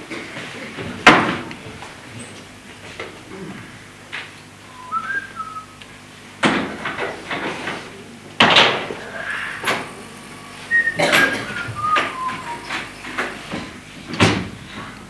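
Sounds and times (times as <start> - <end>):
short whistled notes: 4.7 - 5.8, 10.7 - 12.9.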